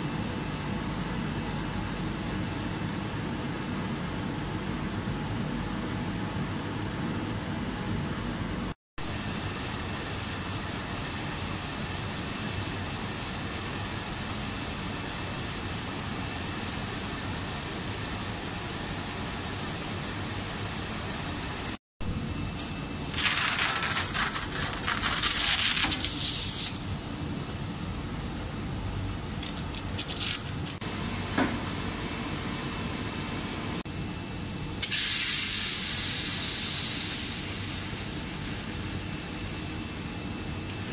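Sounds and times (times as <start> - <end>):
machine running steadily: 26.7 - 40.9
loud hiss: 34.8 - 40.8.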